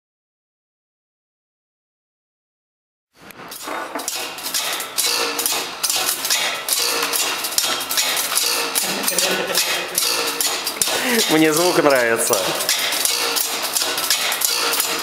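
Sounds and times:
wire loops clattering on reel: 3.5 - 15.0.

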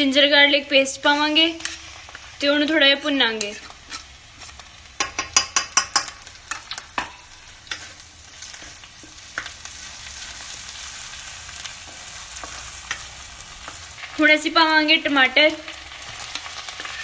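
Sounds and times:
onions sizzling in oil: 0.0 - 17.0
ladle scraping and knocking pan: 3.4 - 9.6.

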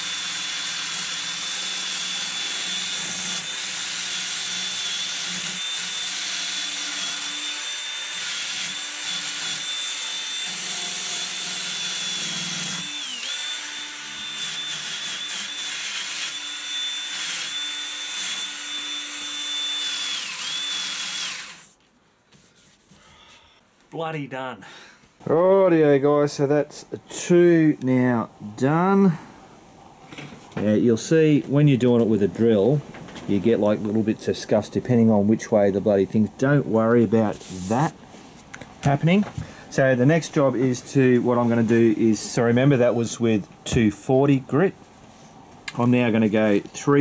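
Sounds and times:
drill motor whine: 0.0 - 21.7.

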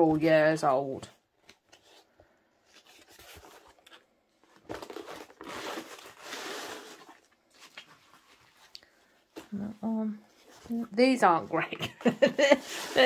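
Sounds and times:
plastic bag crinkling: 2.9 - 8.8.

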